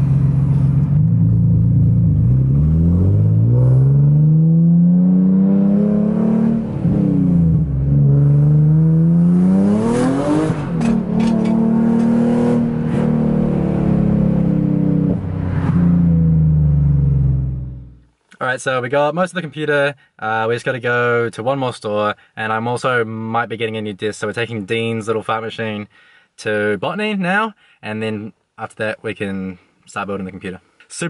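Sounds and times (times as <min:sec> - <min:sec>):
car engine accelerating through gears: 0:00.0 - 0:18.0.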